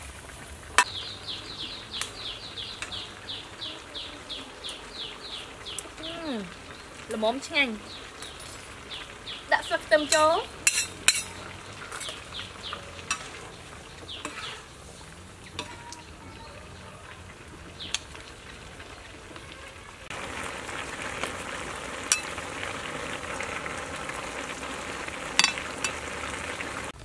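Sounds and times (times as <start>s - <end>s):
vegetables sizzling in a wok: 0.0s - 27.0s
metal ladle scraping pan: 10.1s - 13.6s, 14.2s - 16.1s.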